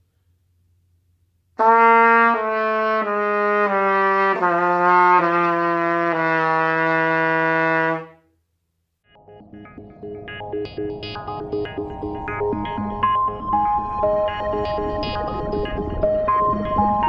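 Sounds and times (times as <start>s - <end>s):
trumpet notes stepping down: 1.6s - 8.2s.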